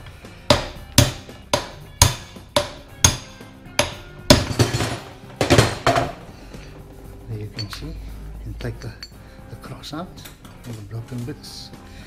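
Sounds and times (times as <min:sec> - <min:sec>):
hammer striking steel: 0:00.5 - 0:06.2.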